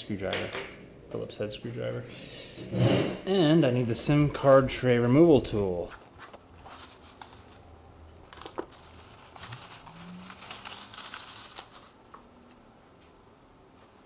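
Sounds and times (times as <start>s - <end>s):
wrapper crinkling: 5.9s - 12.3s.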